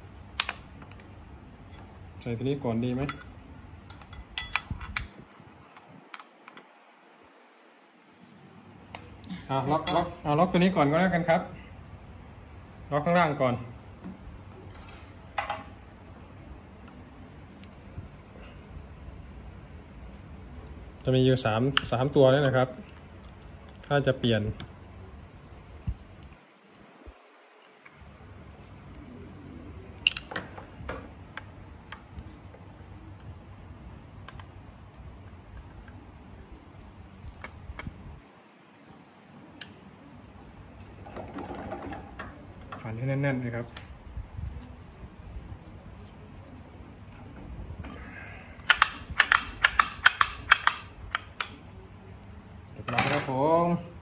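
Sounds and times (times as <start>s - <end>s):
screwdriver clicking on metal: 48.6s - 51.6s.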